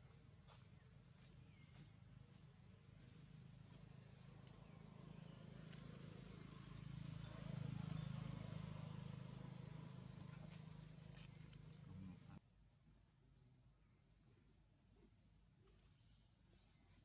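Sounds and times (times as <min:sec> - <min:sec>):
faint low engine hum: 0:00.0 - 0:12.6
light ticks and rustles: 0:10.2 - 0:11.9.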